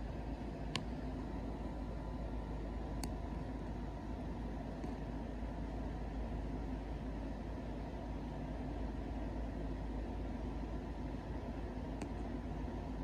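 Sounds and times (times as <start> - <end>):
low background hum and hiss: 0.0 - 13.0.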